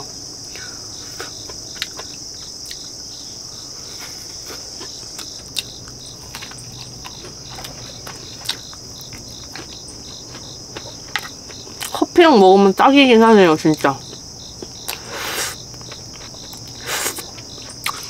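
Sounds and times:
crickets chorus: 0.0s - 18.0s
insect chirping rhythmically: 0.0s - 18.0s.

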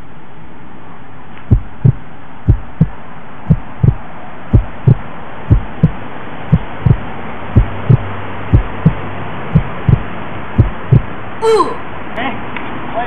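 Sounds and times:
heartbeat thumps: 1.5s - 11.2s.

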